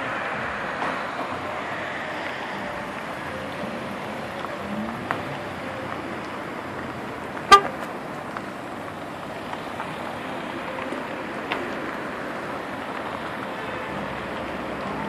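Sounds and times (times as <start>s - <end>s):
cars driving past: 0.0s - 15.0s
car horn toot: 7.5s - 7.9s.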